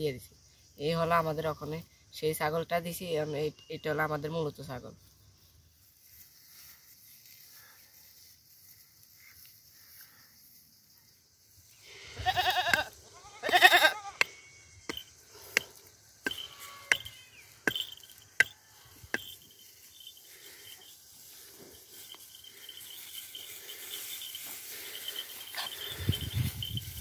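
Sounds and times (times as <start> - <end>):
high insect trill: 0.0 - 27.0
young goat bleating: 12.1 - 14.4, 16.4 - 17.2.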